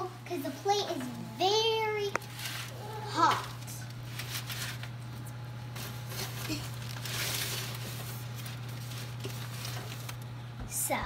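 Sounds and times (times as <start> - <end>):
steady low hum: 0.0 - 11.0
oven mitts rustling: 0.2 - 11.0
aluminium foil crinkling: 2.1 - 10.3.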